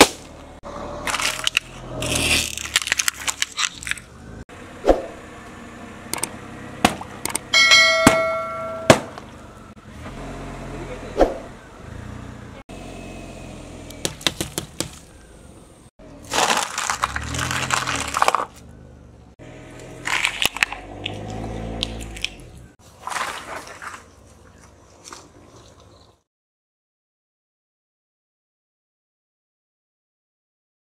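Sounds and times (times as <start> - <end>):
crackling and crunching: 1.0 - 4.1, 16.2 - 18.6, 19.8 - 22.4.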